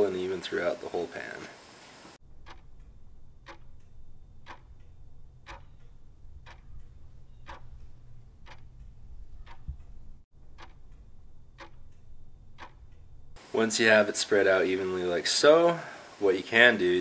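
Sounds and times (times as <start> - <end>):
clock ticking: 2.2 - 13.4
low background rumble: 2.2 - 13.4.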